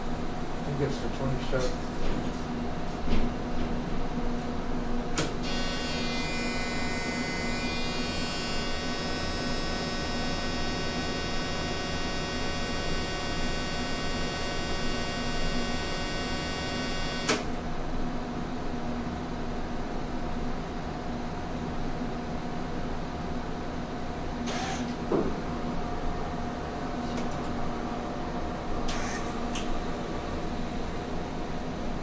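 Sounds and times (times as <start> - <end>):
low electrical hum: 0.0 - 32.0
steady high whine: 5.4 - 17.3.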